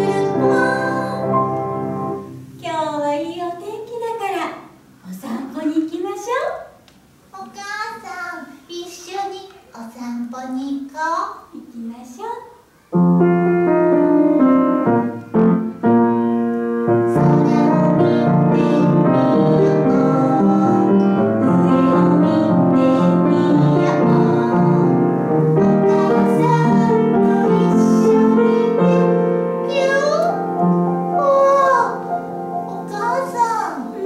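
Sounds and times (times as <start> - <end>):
person singing: 0.0 - 1.3, 17.0 - 30.5, 31.1 - 32.0
piano playing children's song: 0.0 - 3.6, 12.8 - 34.0.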